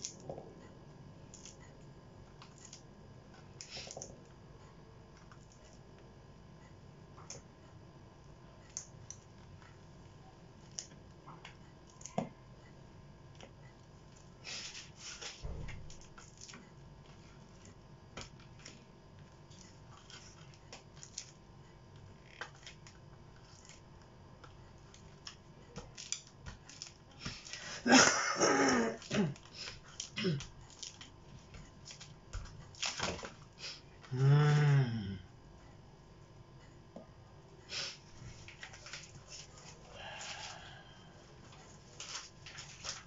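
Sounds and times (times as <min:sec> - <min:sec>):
rustling and scraping: 0:41.4 - 0:43.0.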